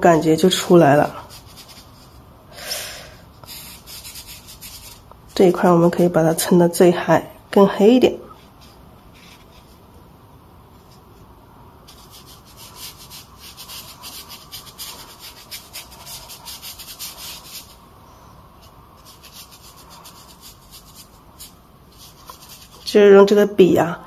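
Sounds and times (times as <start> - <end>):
brush scratching across paper: 0.4 - 2.3, 3.3 - 5.8, 8.3 - 9.9, 10.8 - 17.9, 18.6 - 23.2.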